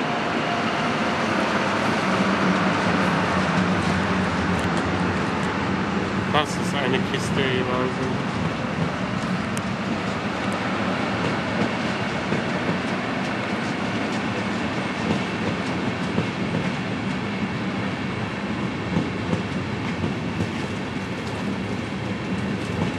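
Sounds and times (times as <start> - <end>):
train wheels clicking over rail joints: 11.2 - 16.8.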